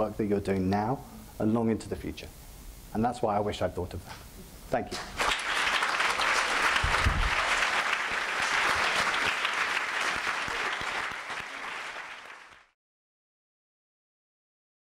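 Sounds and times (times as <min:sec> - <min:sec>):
audience applauding: 0:05.2 - 0:12.8.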